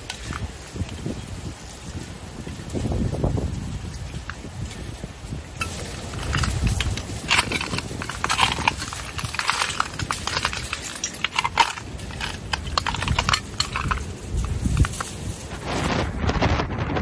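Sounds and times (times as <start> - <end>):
wind rumble on microphone: 0.0 - 17.0
broken glass clinking and crunching: 5.6 - 15.3.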